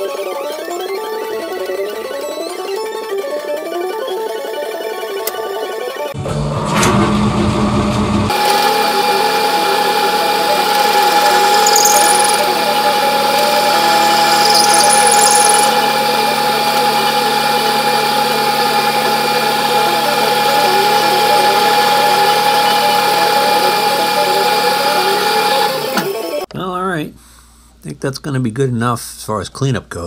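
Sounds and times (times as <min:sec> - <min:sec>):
lathe cutting noise: 0:08.3 - 0:26.5
metal lathe whine: 0:08.3 - 0:26.5.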